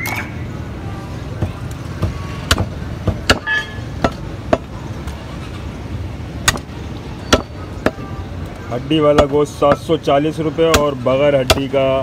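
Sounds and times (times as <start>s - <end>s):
street traffic rumble: 0.0s - 12.0s
cleaver chopping on wooden block: 2.0s - 4.7s, 10.6s - 11.8s.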